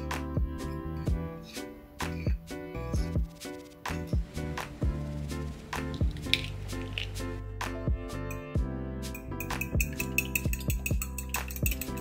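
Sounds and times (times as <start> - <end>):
music with bass-drum beats: 0.0 - 1.2, 2.0 - 12.0
egg cracking: 5.5 - 7.4.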